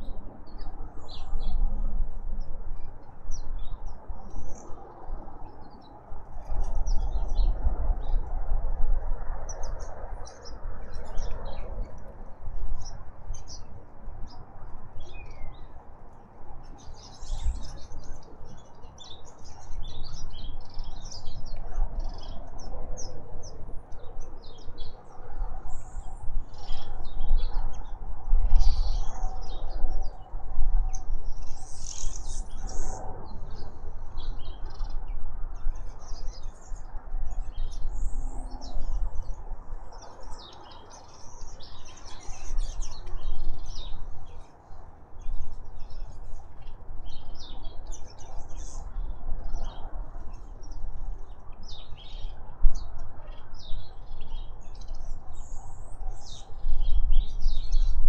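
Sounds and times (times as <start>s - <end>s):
wild birds chirping: 30.9s - 58.0s.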